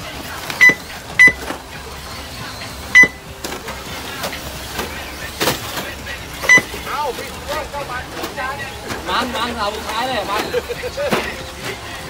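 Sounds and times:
steady background noise: 0:00.0 - 0:12.0
short electronic beeps: 0:00.6 - 0:01.4, 0:02.9 - 0:03.3, 0:06.4 - 0:06.8.

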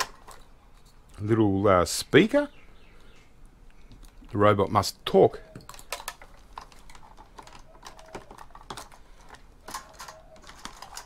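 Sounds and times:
plastic parts clicking and tapping: 0:00.0 - 0:01.0, 0:05.5 - 0:11.0.

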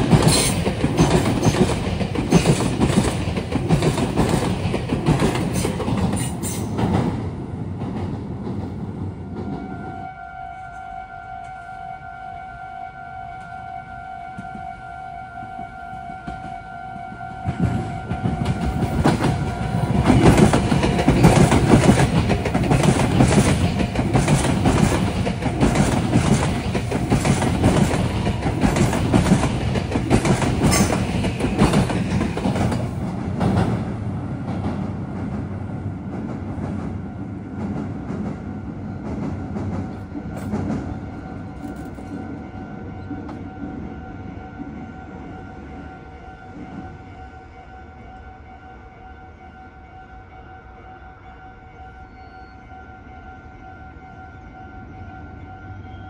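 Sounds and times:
train wheels clacking over rail joints: 0:00.0 - 0:09.6, 0:17.5 - 0:35.5, 0:36.1 - 0:42.3.

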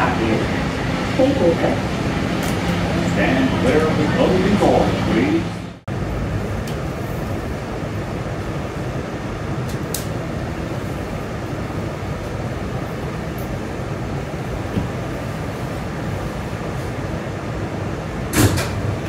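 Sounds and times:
subway car running noise: 0:00.0 - 0:19.0.

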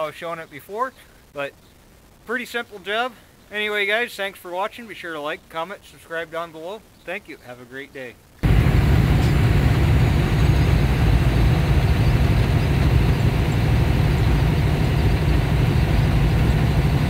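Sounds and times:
truck diesel engine drone: 0:08.4 - 0:17.0.

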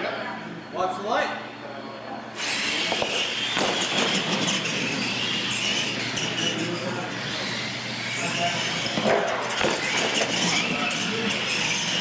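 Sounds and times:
electric motor whine: 0:02.4 - 0:12.0
tyre noise on concrete: 0:02.7 - 0:06.5.

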